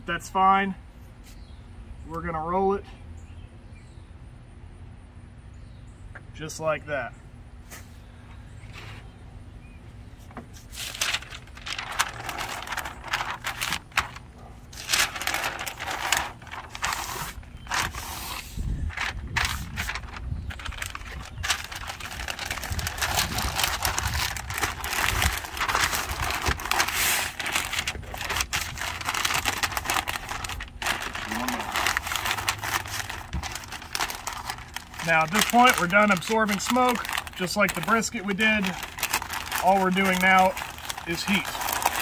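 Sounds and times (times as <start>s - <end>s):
paper rustling and crinkling: 10.2s - 42.0s.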